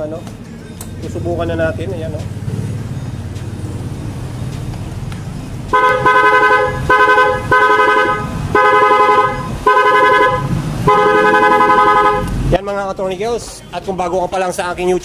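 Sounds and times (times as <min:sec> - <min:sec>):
scooter horn blasts: 0:05.7 - 0:12.4.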